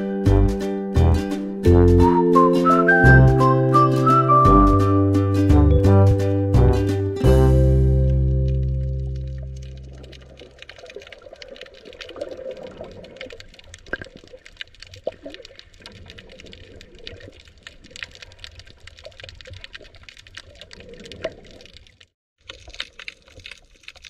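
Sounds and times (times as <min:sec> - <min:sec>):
low water rumble: 0:00.3 - 0:24.0
crackling clicks underwater: 0:08.5 - 0:24.0.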